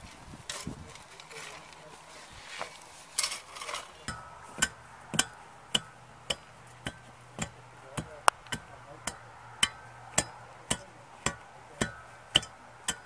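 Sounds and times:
shovels scraping soil: 0:00.5 - 0:04.1
steel bar striking soil: 0:03.2 - 0:13.0.

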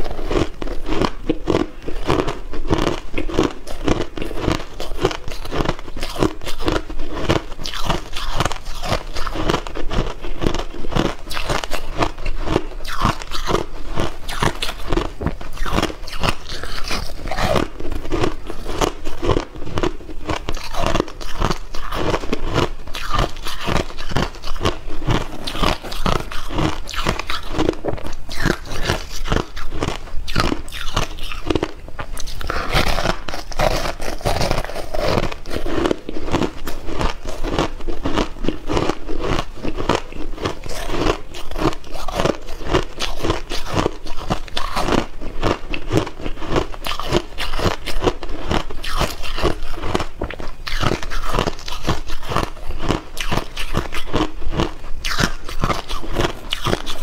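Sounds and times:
crushed ice being chewed: 0:00.0 - 0:57.0.

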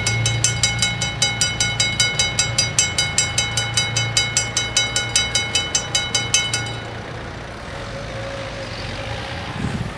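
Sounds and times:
level-crossing warning bells ringing: 0:00.0 - 0:07.6.

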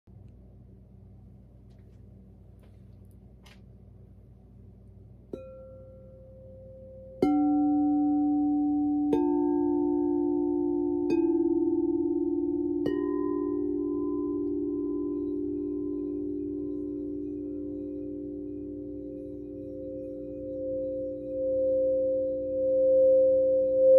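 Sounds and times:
crystal singing bowls ringing: 0:05.3 - 0:23.9.

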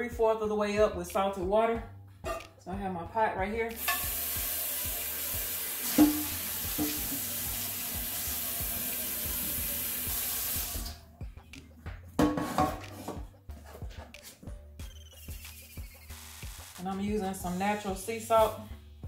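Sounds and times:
faucet running into pot: 0:03.8 - 0:11.0.

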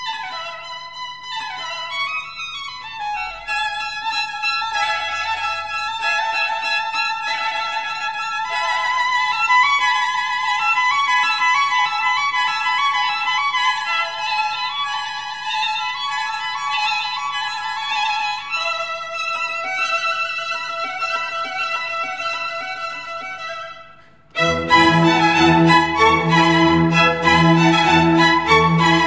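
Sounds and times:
violin melody: 0:00.0 - 0:29.0
low accompaniment: 0:24.4 - 0:29.0.

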